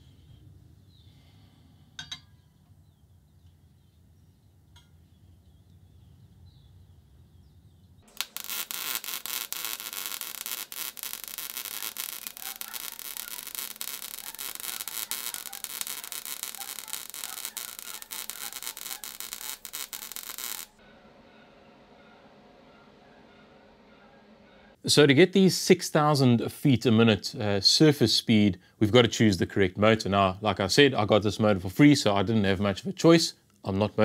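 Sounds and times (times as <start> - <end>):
belt grinder grinding metal: 8.1 - 20.8.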